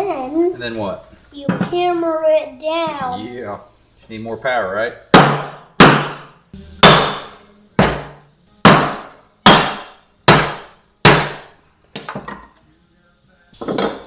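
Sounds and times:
sledgehammer striking metal: 0:05.2 - 0:11.5.

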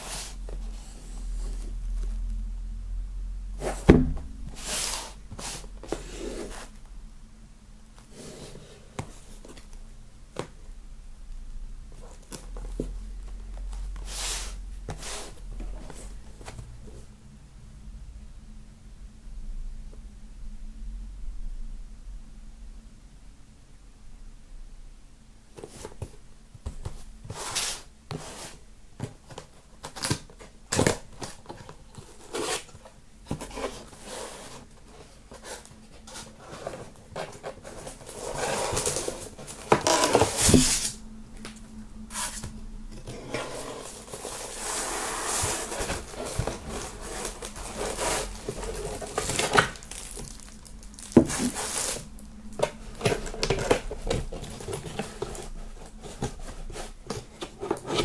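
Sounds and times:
foam scraping against cardboard: 0:43.2 - 0:50.4, 0:51.2 - 0:52.0.

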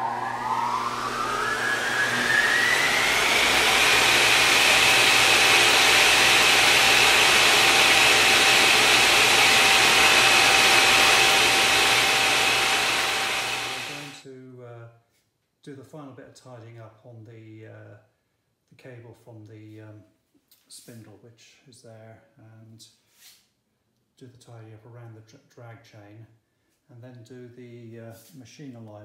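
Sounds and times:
rising electronic whine: 0:00.0 - 0:04.8
loud rushing hiss: 0:00.0 - 0:14.2.

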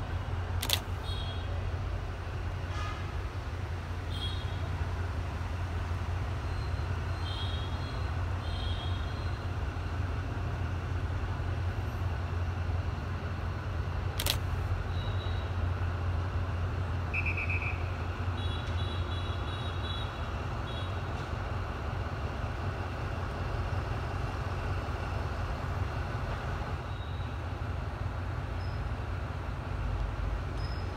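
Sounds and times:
diesel locomotive engine rumble: 0:00.0 - 0:30.9
sharp click: 0:00.6 - 0:00.9, 0:14.2 - 0:14.4.

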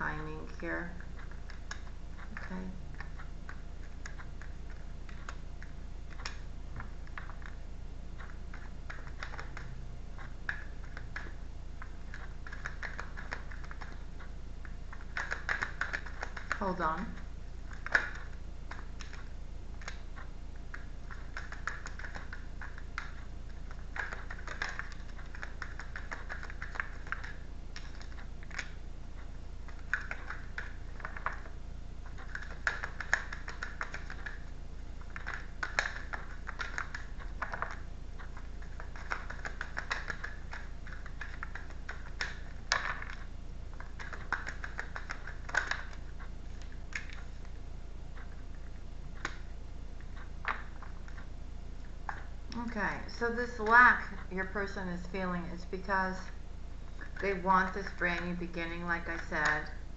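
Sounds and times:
cards being shuffled: 0:08.2 - 0:47.5.

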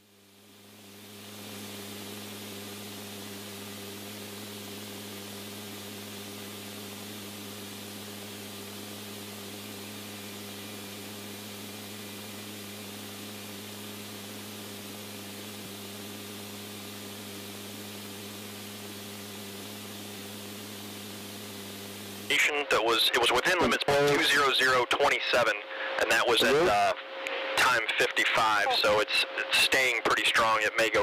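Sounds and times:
radio channel hiss: 0:00.5 - 0:31.0
low even hum: 0:25.2 - 0:29.5.

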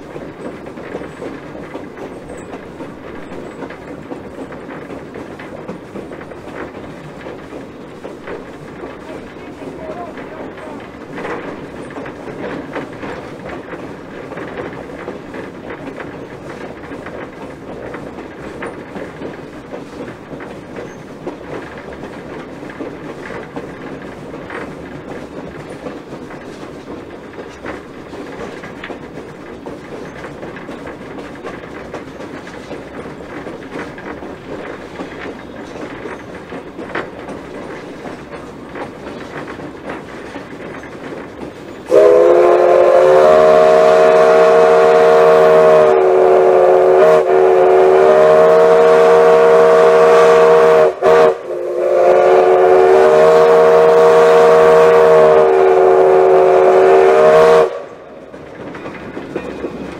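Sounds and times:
clicks over rail joints: 0:00.0 - 0:42.0, 0:58.0 - 0:59.9
wheels rumbling and rattling on rail: 0:00.0 - 0:59.9.

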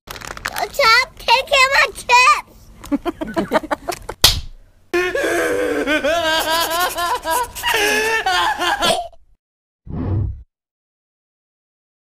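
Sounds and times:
sharp slap: 0:04.2 - 0:04.6
cartoon voice laughing: 0:05.0 - 0:09.1.

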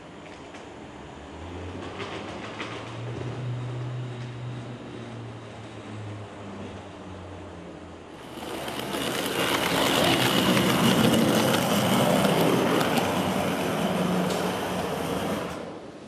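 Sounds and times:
wheels rolling on rails: 0:00.0 - 0:06.9, 0:08.1 - 0:16.0
model tram motor whining: 0:08.0 - 0:16.0.

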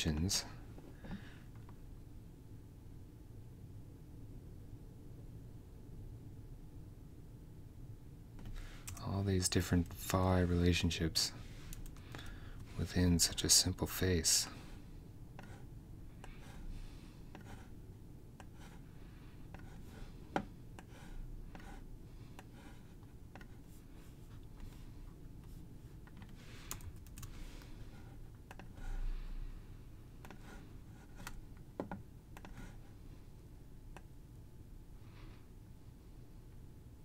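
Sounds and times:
mouse and keyboard clicks: 0:28.5 - 0:28.7.

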